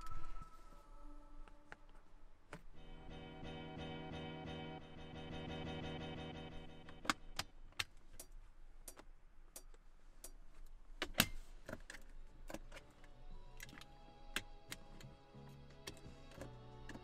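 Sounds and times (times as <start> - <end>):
music: 0.0 - 7.6, 12.5 - 17.0.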